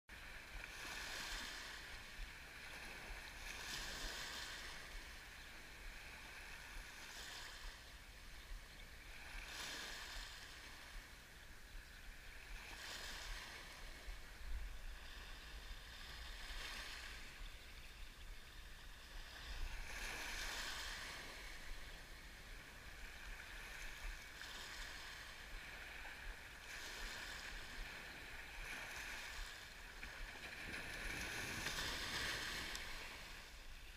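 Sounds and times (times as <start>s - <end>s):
waves washing up pebble beach: 3.0s - 5.0s, 19.7s - 21.7s, 23.5s - 33.6s.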